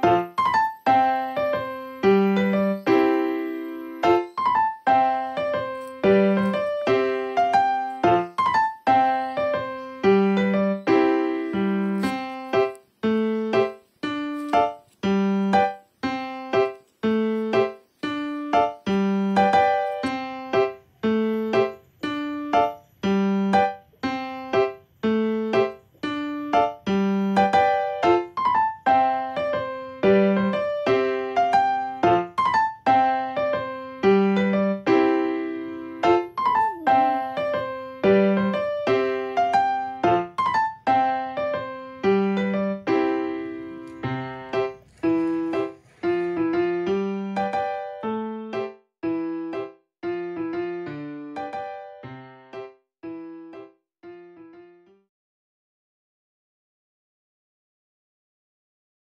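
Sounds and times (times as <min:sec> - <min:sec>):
light piano tune: 0:00.0 - 0:55.0.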